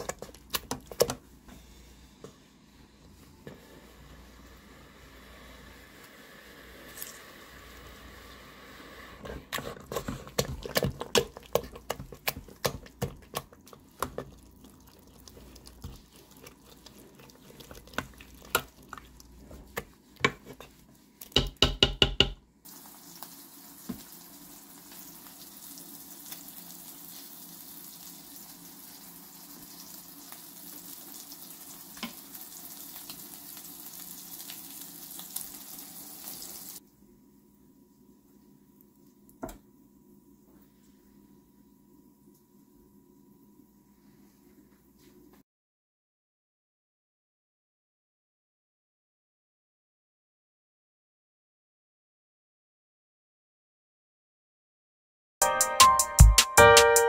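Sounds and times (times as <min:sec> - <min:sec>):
masher squelching food: 0:00.0 - 0:01.4, 0:09.2 - 0:21.6
masher tapping on pot: 0:21.3 - 0:22.4.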